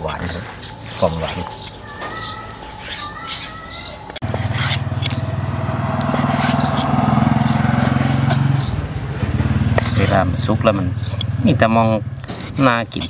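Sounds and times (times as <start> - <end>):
small birds chirping: 0.0 - 13.0
motorcycle engine running: 4.2 - 12.6.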